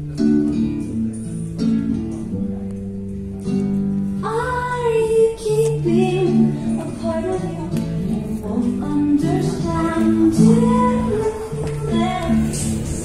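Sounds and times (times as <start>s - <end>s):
acoustic guitar: 0.0s - 13.0s
person singing: 4.2s - 13.0s.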